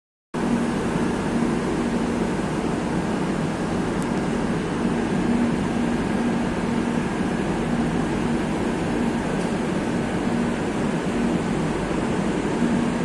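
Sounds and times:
low wavering hum: 0.4s - 13.0s
train ventilation rushing hum: 0.4s - 13.0s.

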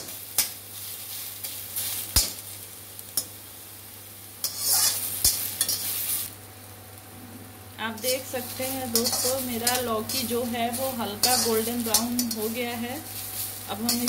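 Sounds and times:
soft frying sizzle: 0.0s - 14.0s
metal spatula scraping iron pan: 4.4s - 5.9s, 8.1s - 12.6s.

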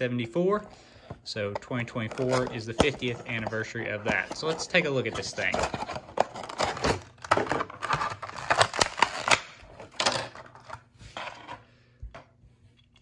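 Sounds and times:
plastic packaging crackling: 2.0s - 9.6s.

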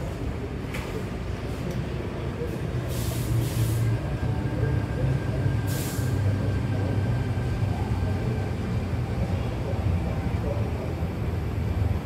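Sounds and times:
train humming: 0.0s - 12.0s
air hissing: 2.9s - 4.0s, 5.6s - 6.2s.

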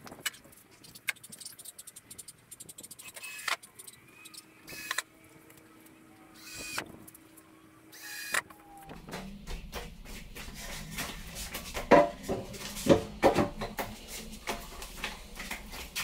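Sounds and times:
wood knocking on tile: 11.8s - 14.6s.

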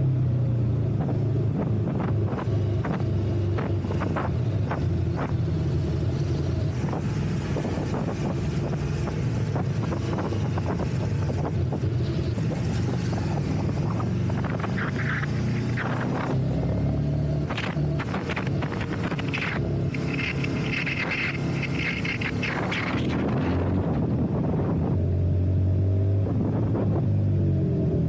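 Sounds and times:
motorcycle engine at low revs: 0.0s - 28.0s
wind noise on microphone: 0.9s - 28.0s
exhaust pops: 17.4s - 24.0s.

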